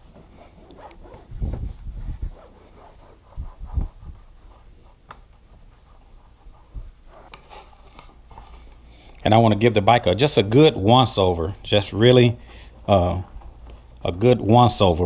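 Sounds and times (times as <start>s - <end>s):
towel rubbing plastic trim: 0.0s - 8.1s.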